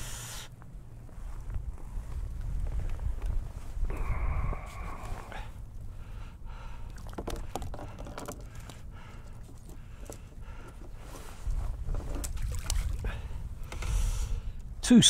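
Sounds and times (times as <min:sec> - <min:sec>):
low wind rumble: 0:00.0 - 0:15.0
waves lapping against kayak hull: 0:06.0 - 0:14.7.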